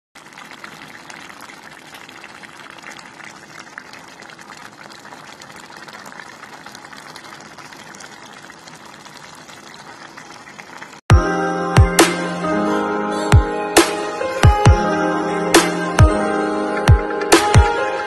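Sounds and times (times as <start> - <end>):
stew bubbling with small pops: 0.2 - 11.1.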